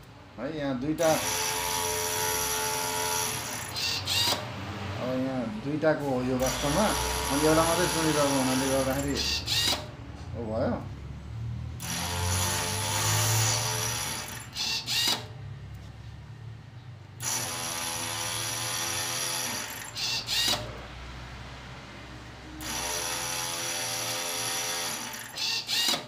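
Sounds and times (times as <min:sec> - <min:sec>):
machine motor whirring: 0:01.0 - 0:04.5, 0:06.4 - 0:10.0, 0:11.8 - 0:15.4, 0:17.2 - 0:20.8, 0:22.6 - 0:26.0.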